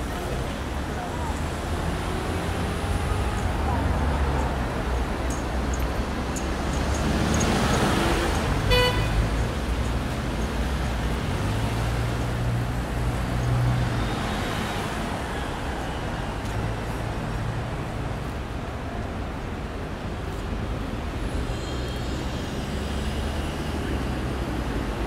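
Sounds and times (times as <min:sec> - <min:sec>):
passing cars: 0:00.0 - 0:25.0
car horn toot: 0:08.7 - 0:09.2.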